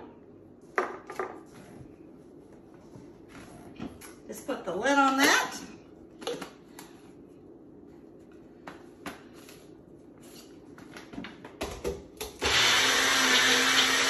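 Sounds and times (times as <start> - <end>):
blender motor running: 12.4 - 14.0.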